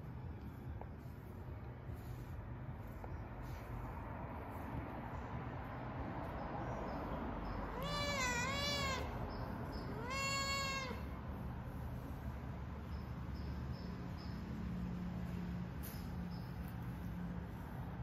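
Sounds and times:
cat meowing: 0:07.7 - 0:09.2, 0:09.8 - 0:11.2.

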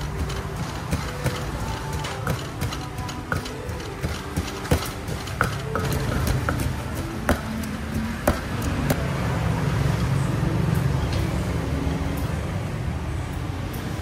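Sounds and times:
wooden pestle knocking in mortar: 0:00.0 - 0:09.0
low rumble of road traffic: 0:00.0 - 0:14.0.

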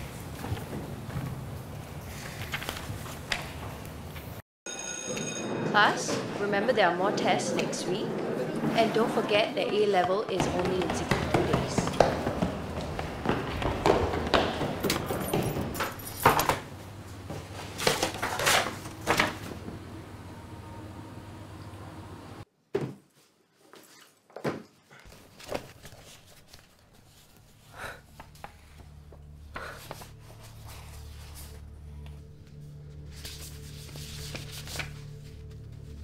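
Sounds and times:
footsteps on stairs: 0:00.0 - 0:02.1, 0:09.5 - 0:17.6
low steady hum: 0:14.7 - 0:22.4
papers rustling: 0:17.4 - 0:19.6, 0:25.1 - 0:29.0, 0:33.0 - 0:36.0.

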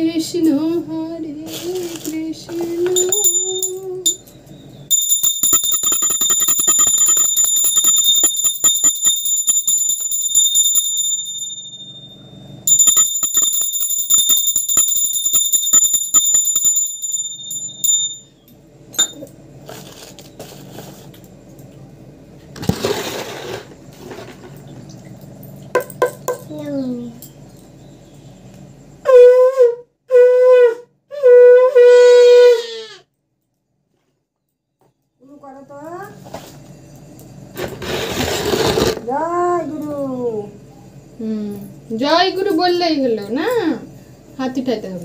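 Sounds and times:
small hand bell ringing: 0:02.9 - 0:19.4.

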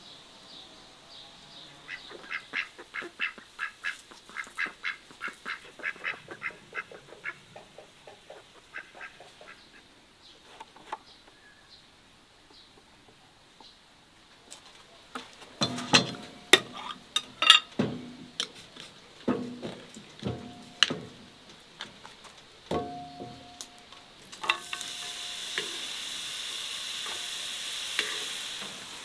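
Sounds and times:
ducks quacking: 0:01.7 - 0:09.9.

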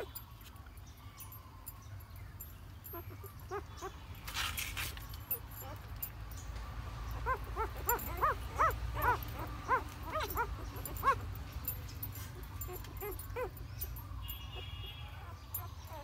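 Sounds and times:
puppies whimpering and squeaking: 0:00.0 - 0:00.3, 0:02.4 - 0:16.0.

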